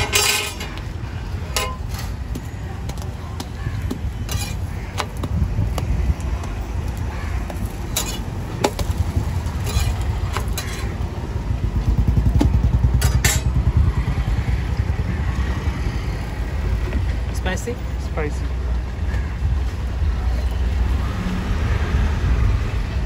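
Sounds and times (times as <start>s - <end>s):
metal spatula scraping on griddle: 0.0s - 0.8s, 4.3s - 4.6s, 8.0s - 8.3s, 9.6s - 10.9s
low rumble of traffic: 0.0s - 23.0s.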